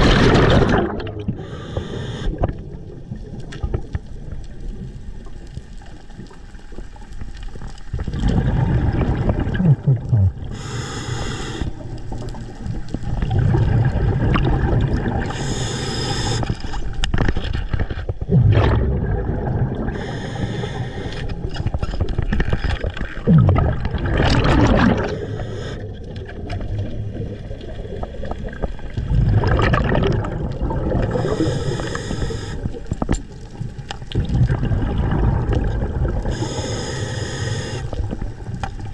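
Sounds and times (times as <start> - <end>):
underwater rumbling water movement: 0.0 - 38.9
short hissing bursts: 1.4 - 2.4, 10.5 - 11.8, 15.3 - 16.6, 19.9 - 21.3, 25.1 - 25.8, 31.2 - 32.7, 36.3 - 38.0.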